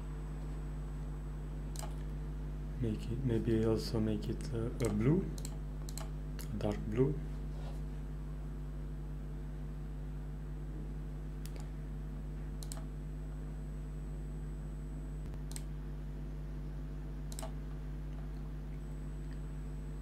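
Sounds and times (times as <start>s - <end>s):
steady low hum: 0.0s - 20.0s
computer mouse clicking: 1.7s - 2.1s, 4.8s - 6.5s, 11.4s - 11.7s, 12.6s - 12.9s, 15.4s - 15.7s, 17.3s - 17.6s.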